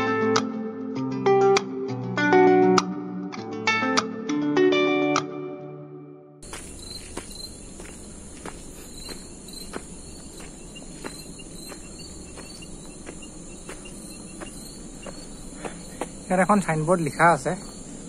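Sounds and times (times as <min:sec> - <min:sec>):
crickets and insects chirring: 0:06.4 - 0:18.0
footsteps on footbridge walkway: 0:06.4 - 0:18.0.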